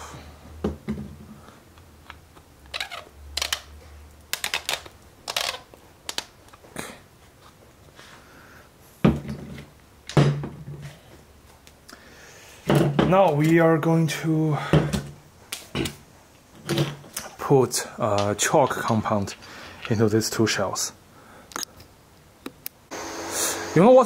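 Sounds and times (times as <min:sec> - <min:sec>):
plastic pieces clicking on table: 0:04.3 - 0:06.3.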